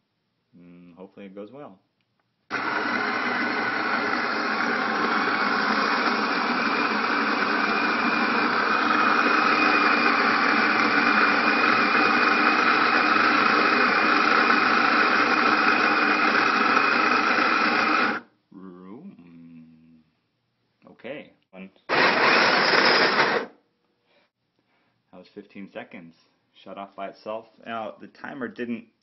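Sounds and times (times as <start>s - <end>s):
electric coffee grinder grinding: 2.5s - 18.2s, 21.9s - 23.5s.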